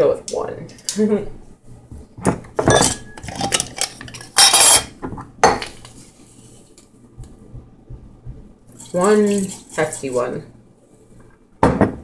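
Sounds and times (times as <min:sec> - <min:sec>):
metal spoon scraping a dish: 0:03.3 - 0:04.9, 0:08.7 - 0:10.3.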